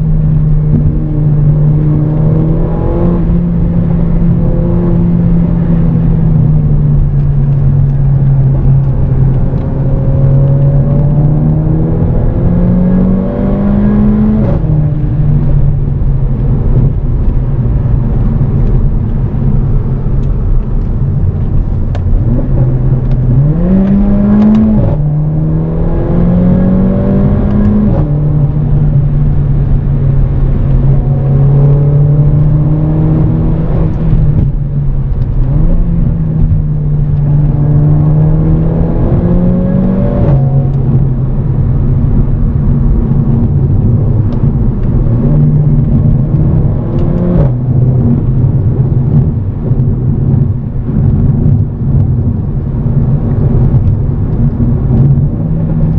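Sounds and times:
car engine accelerating: 0.0s - 55.9s
road rumble: 0.0s - 55.9s.

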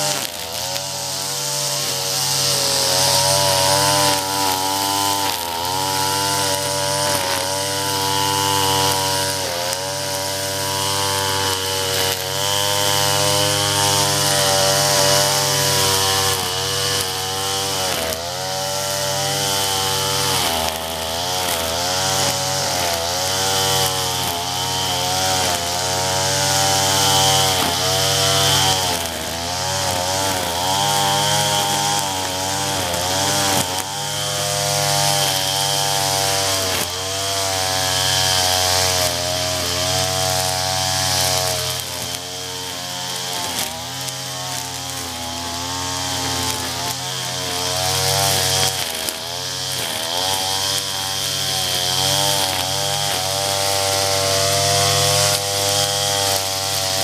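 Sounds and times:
string trimmer engine running: 0.0s - 57.0s.

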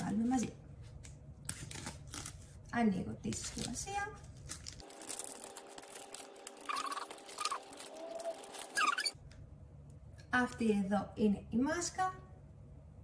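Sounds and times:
foil sachet crinkling: 3.2s - 9.2s.

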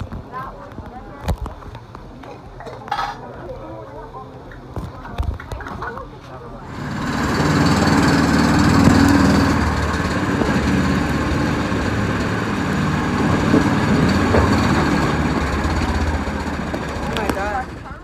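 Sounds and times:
motor running loudly: 6.6s - 18.0s.

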